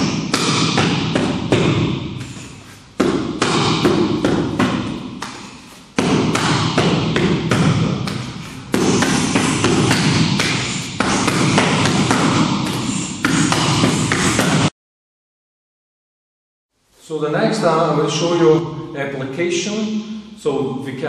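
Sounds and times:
punches hitting focus mitts: 0.0s - 2.2s, 3.0s - 14.7s.

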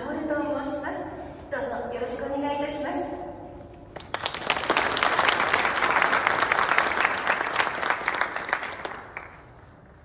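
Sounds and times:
audience applauding: 4.0s - 9.7s.

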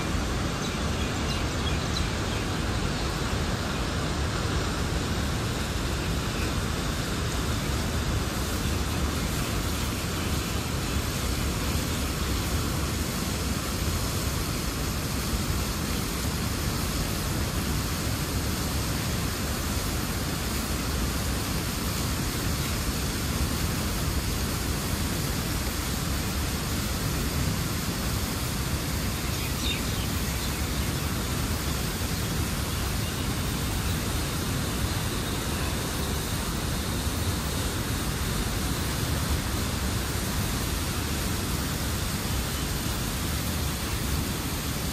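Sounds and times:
water rushing through dam gate: 0.0s - 44.9s.

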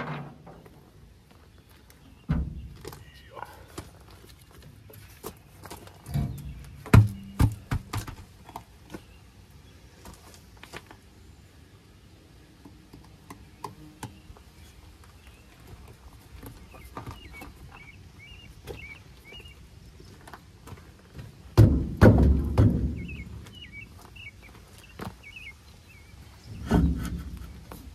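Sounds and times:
footsteps crunching on gravel: 2.6s - 9.1s
tire knocked on gravel: 6.1s - 8.3s, 21.6s - 23.4s.

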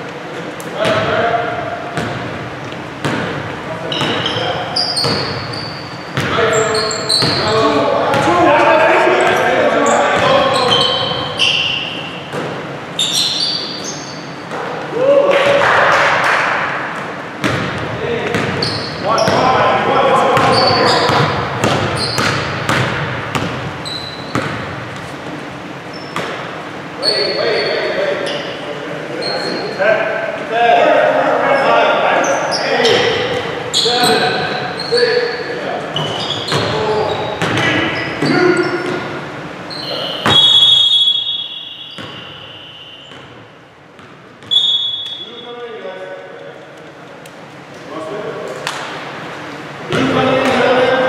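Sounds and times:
sneakers squeaking on floor: 0.0s - 14.9s, 16.9s - 29.8s, 31.5s - 46.7s
basketball bouncing on hardwood floor: 6.2s - 6.4s, 17.4s - 18.6s, 20.4s - 23.7s, 24.3s - 25.1s, 37.4s - 39.0s
referee's whistle blast: 39.7s - 43.1s, 44.5s - 45.5s.

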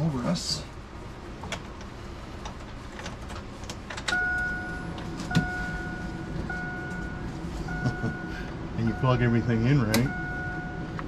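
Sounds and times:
vehicle warning chime beeping: 4.1s - 11.0s.

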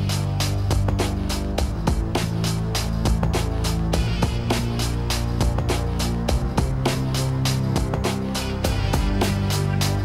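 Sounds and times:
held bass notes: 0.0s - 10.0s
drum beat: 7.7s - 10.0s.

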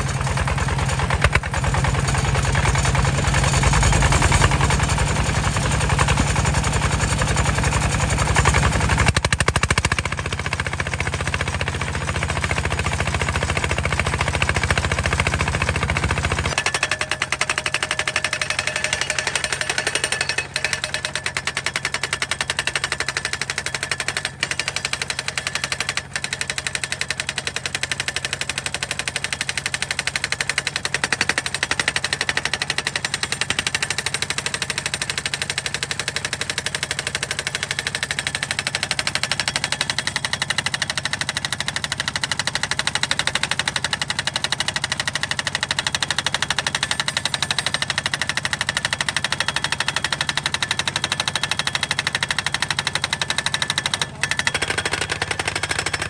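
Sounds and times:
diesel engine rumbling: 0.0s - 24.6s
hammer pounding steel post: 11.9s - 56.0s.

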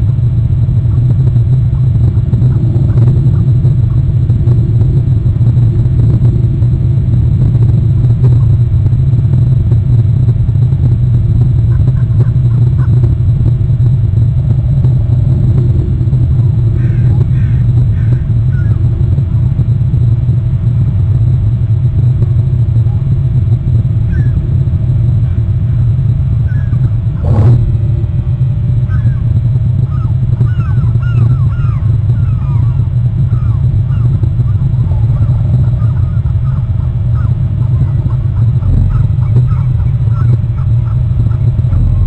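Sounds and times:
wind buffeting microphone: 0.0s - 42.0s
small birds chirping: 16.4s - 18.9s, 24.1s - 24.4s, 26.4s - 27.6s, 28.9s - 41.5s.

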